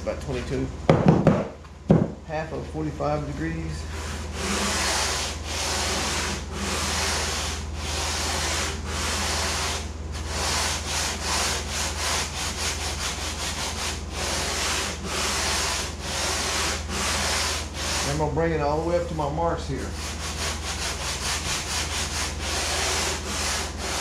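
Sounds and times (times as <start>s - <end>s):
sanding block rubbing foam board: 3.9s - 18.4s, 19.7s - 24.0s.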